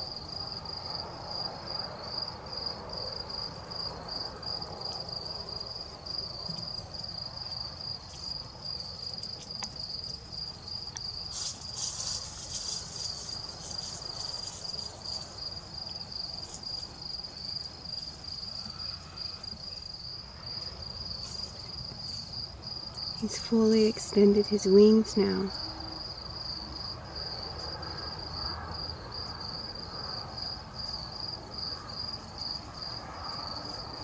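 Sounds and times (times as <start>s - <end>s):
high-pitched insect trill: 0.0s - 34.0s
rough high insect buzz: 3.4s - 23.4s.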